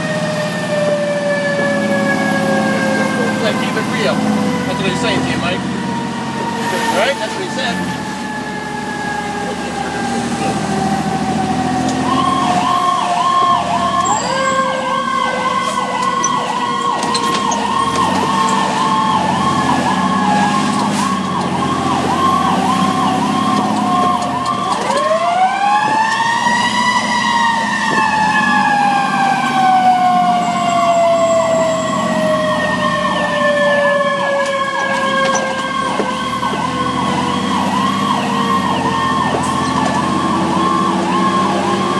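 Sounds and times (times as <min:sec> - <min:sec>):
electronic siren yelping: 0:00.0 - 0:41.9
siren wailing: 0:00.0 - 0:41.9
truck engine droning: 0:00.0 - 0:41.9.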